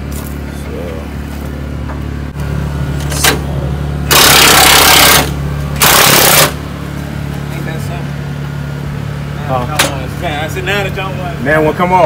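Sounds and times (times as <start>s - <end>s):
steady low hum: 0.0s - 12.0s
pneumatic impact wrench hammering: 3.1s - 3.5s, 4.1s - 6.6s.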